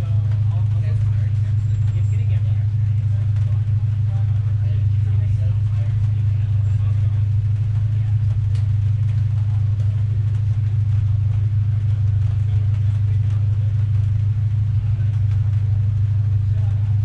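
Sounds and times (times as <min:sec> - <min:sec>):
race car engine idling: 0:00.0 - 0:17.0.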